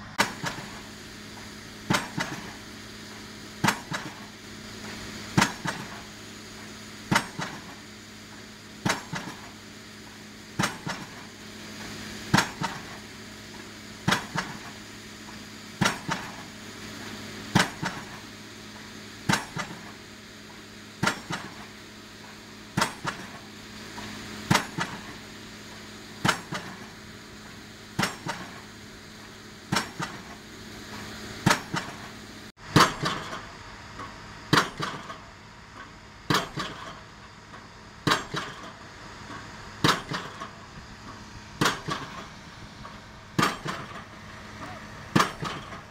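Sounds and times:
pile driver hammer striking: 7.1 - 7.7, 28.0 - 28.6, 32.7 - 33.4, 34.5 - 35.2, 39.8 - 40.5, 41.6 - 42.3, 43.4 - 45.8.

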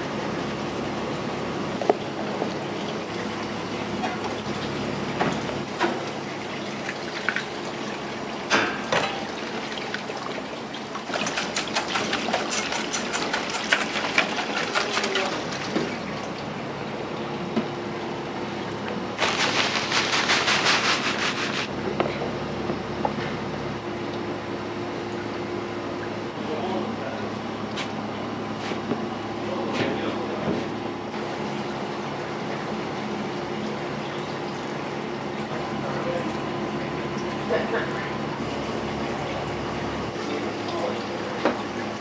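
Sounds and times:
kitchen background hum: 0.0 - 42.0
running splashing water: 2.1 - 16.6, 18.7 - 21.7
utensils clattering: 11.1 - 15.7.

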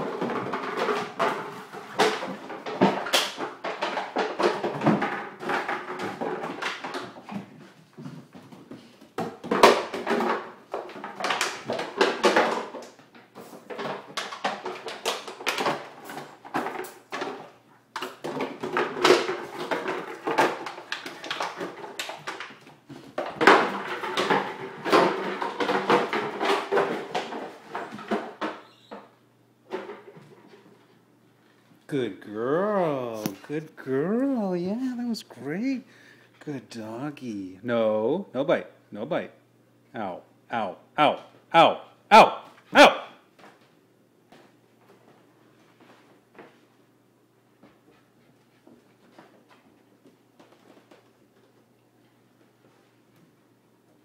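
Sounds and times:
bottle clattering on wooden floor: 0.0 - 29.1.

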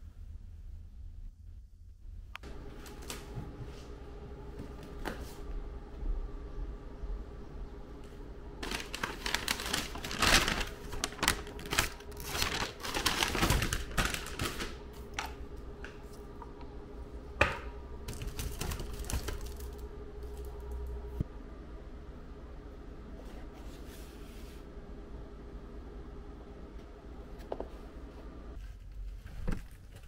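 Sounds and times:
faint steady hum: 0.0 - 30.0
crinkly plastic rustling: 8.6 - 15.9, 18.1 - 20.8
items handled in wicker basket: 8.6 - 16.2.

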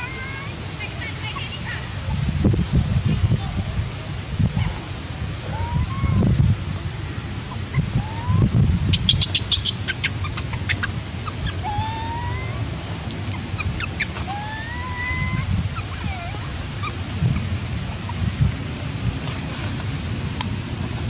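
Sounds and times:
baby monkey crying: 0.0 - 0.5, 5.4 - 6.3, 7.5 - 18.2.

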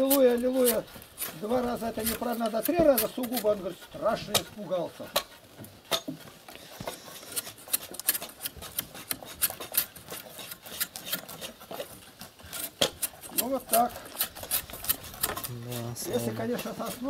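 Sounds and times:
blades scraping bark off wood: 0.0 - 17.0.

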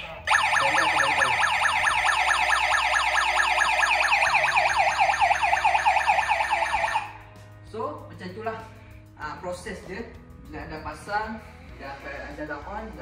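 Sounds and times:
gas detector siren alarm: 0.3 - 7.2.

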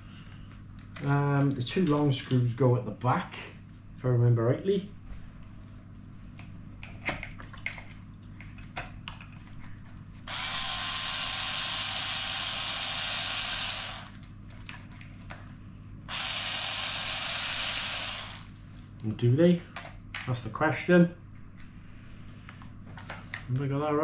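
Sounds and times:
electric screwdriver running: 10.3 - 14.2, 16.1 - 18.5.

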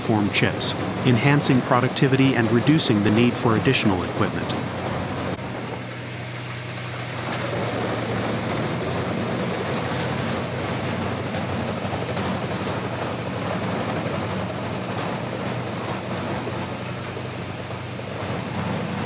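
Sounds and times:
engine hum: 0.0 - 19.0.

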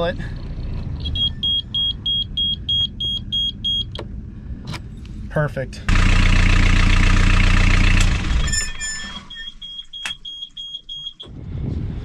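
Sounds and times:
diesel engine running: 5.8 - 12.0
alarm buzzer beeping: 8.4 - 11.2.

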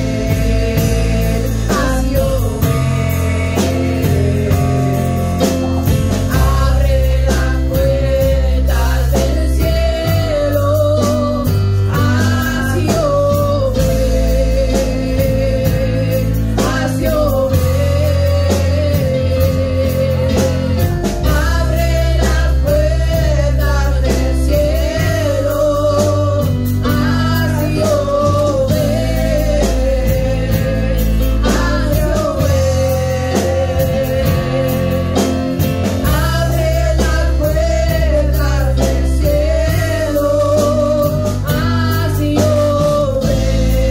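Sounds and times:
church band playing: 0.0 - 43.9
women singing into microphones: 0.0 - 43.9.

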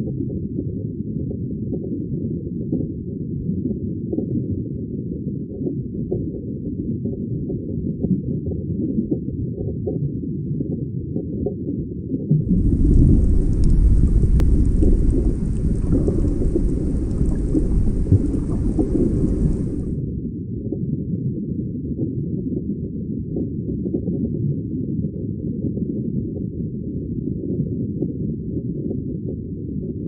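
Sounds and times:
deep steady rumbling: 12.4 - 20.0
faint hiss: 12.5 - 20.0.

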